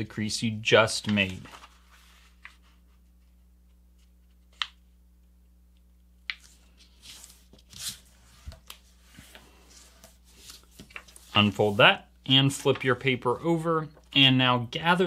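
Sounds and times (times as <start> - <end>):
paper rustling and sliding: 0.9 - 3.2, 6.5 - 13.0.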